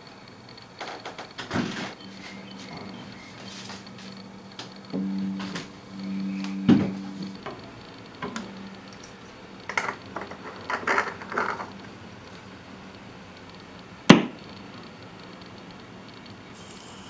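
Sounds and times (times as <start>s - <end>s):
record rubbing and clattering: 0.8s - 2.0s, 6.5s - 12.6s
tonearm click: 4.5s - 10.2s.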